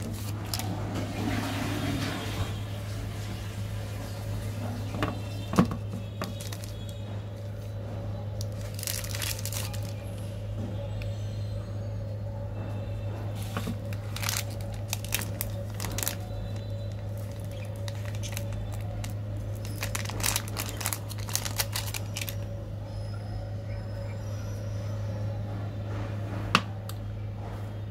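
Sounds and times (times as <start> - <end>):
candy wrapper crinkling: 0.0 - 0.8, 5.9 - 7.7, 8.4 - 10.3, 13.4 - 22.6
steady low hum: 0.0 - 27.9.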